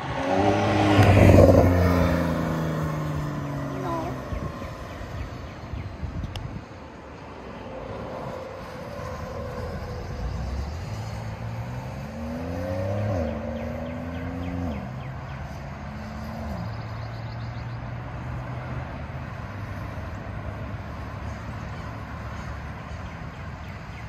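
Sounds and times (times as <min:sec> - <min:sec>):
car accelerating through gears: 0:00.0 - 0:04.6, 0:09.2 - 0:17.2
traffic and tyre noise: 0:00.0 - 0:24.0.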